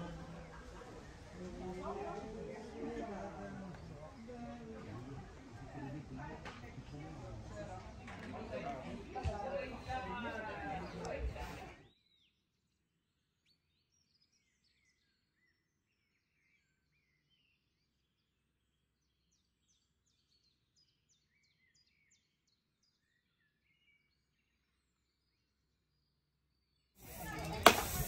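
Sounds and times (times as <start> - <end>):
faint bird chirping: 9.5 - 27.6.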